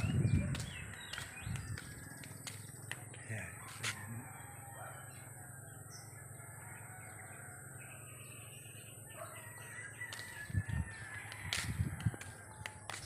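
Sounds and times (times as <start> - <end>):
small birds chirping: 0.0 - 3.9.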